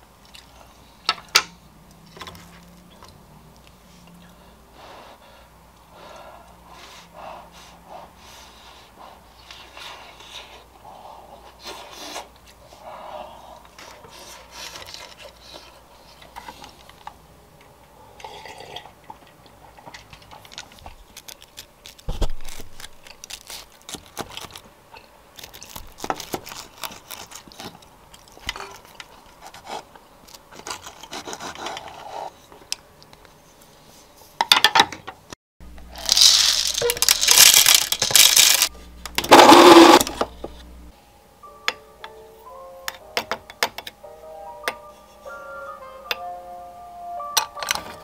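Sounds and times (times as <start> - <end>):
crunching crust: 20.2 - 24.7, 25.3 - 31.6, 35.9 - 40.3
knife and fork cutting sandwich: 25.4 - 29.9
coffee beans rattling into grinder: 35.9 - 40.2.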